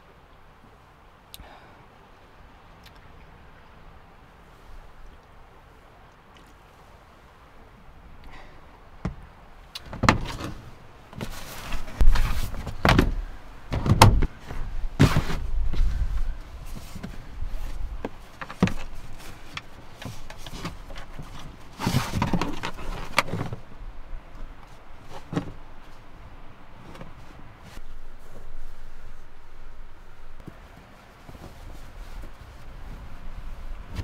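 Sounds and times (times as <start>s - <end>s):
plastic bins scraping: 9.9s - 23.7s, 24.7s - 25.7s
plastic bins knocking and thudding: 11.2s - 15.8s.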